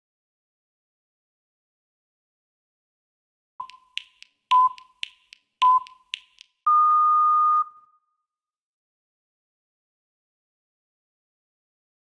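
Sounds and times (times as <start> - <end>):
light quick ticks: 3.6 - 6.6
interval timer beeps: 3.6 - 8.0.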